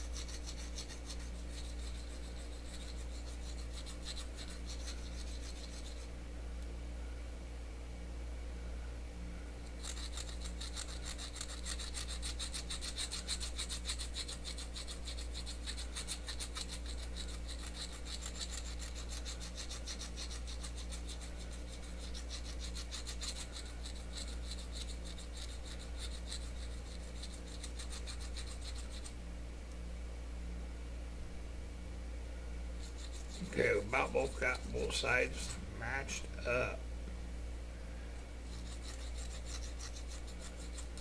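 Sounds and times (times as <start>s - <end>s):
needle file rasping on metal: 0.0s - 6.1s, 9.7s - 29.1s, 32.8s - 35.6s, 38.5s - 41.0s.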